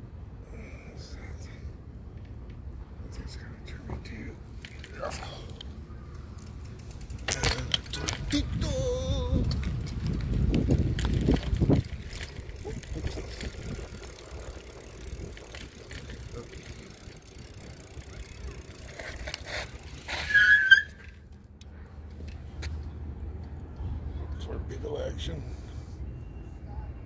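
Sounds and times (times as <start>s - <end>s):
bicycle rolling over paving: 4.5s - 21.4s
wind noise: 7.2s - 15.9s
bicycle brake squeal: 19.4s - 21.2s.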